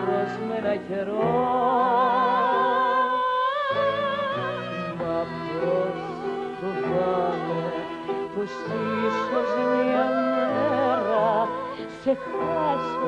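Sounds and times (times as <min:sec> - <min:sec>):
women singing with vibrato: 0:00.0 - 0:13.0
orchestral strings: 0:03.8 - 0:13.0.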